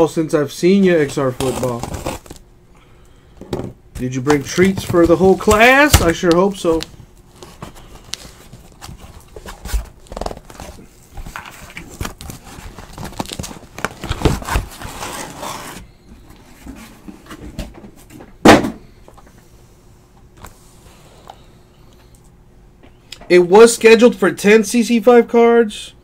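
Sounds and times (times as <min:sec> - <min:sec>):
cardboard boxes handled: 0:01.0 - 0:02.4, 0:03.6 - 0:18.2.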